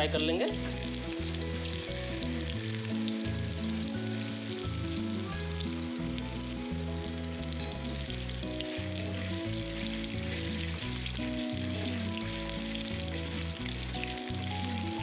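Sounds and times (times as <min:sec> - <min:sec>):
background music: 0:00.0 - 0:15.0
deep-frying sizzle: 0:00.0 - 0:15.0.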